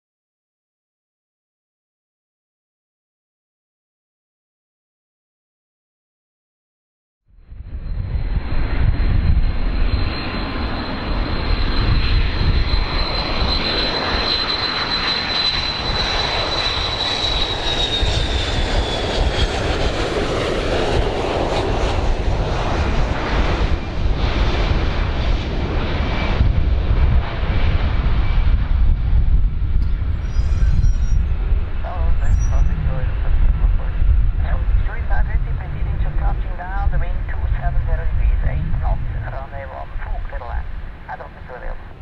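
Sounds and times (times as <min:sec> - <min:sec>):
jet engines roaring overhead: 0:07.5 - 0:42.0.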